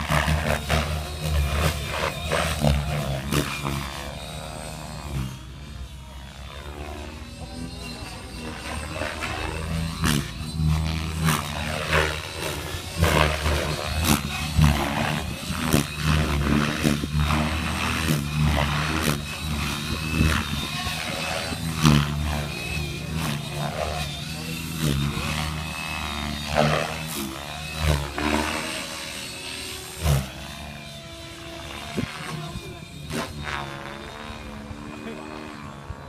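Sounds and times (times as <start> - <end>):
model aircraft motor drone: 0.0 - 36.0.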